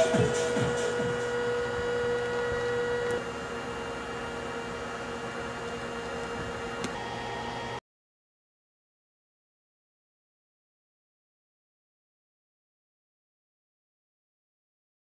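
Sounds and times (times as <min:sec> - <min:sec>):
electrical hum and hiss: 0:00.0 - 0:07.8.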